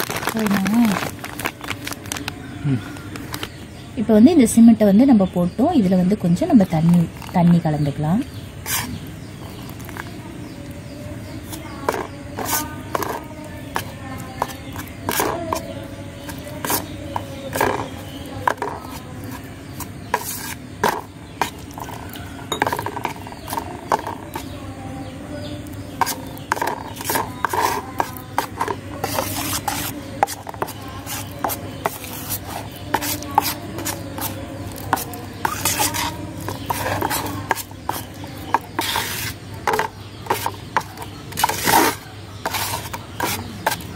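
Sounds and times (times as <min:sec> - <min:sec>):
knife scraping metal plate: 0:26.0 - 0:43.9.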